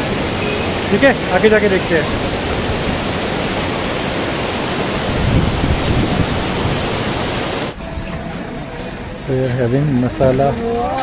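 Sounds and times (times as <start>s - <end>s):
water rushing down concrete steps: 0.0s - 7.8s.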